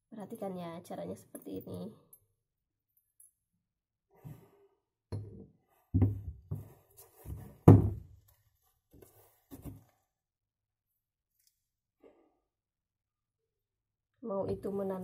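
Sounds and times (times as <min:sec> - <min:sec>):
glass bottles knocking on wood: 0:05.1 - 0:06.4.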